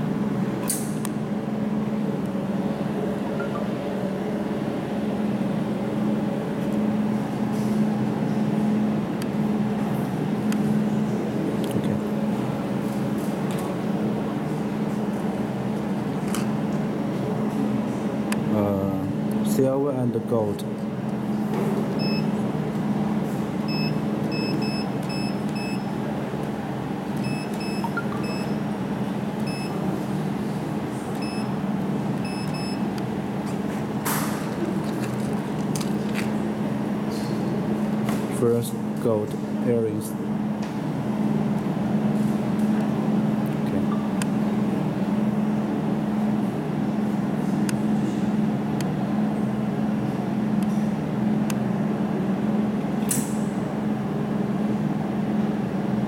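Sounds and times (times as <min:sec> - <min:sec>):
steady low hum: 0:00.0 - 0:56.0
short electronic beeps: 0:27.2 - 0:28.6.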